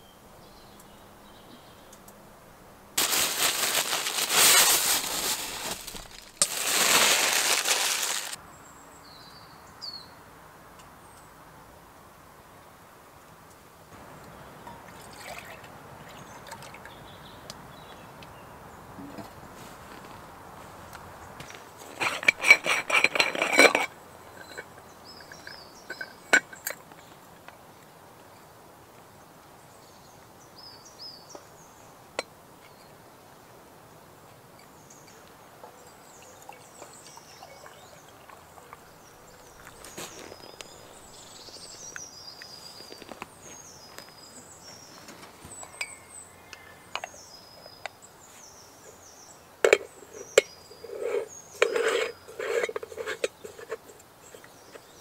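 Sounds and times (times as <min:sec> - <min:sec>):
small birds chirping: 0:00.0 - 0:02.2, 0:14.2 - 0:19.7, 0:24.0 - 0:33.4, 0:34.6 - 0:55.0
sharp clinks and knocks: 0:21.9 - 0:26.9.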